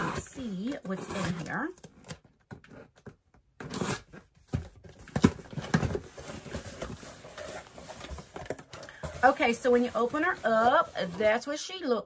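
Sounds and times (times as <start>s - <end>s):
packaging rustling and tearing: 3.6s - 11.2s.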